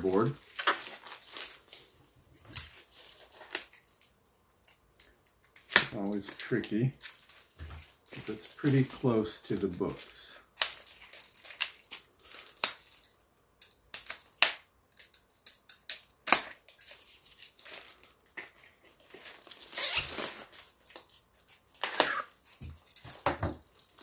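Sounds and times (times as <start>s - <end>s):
cardboard tearing scrape: 19.6s - 20.5s, 21.8s - 22.4s.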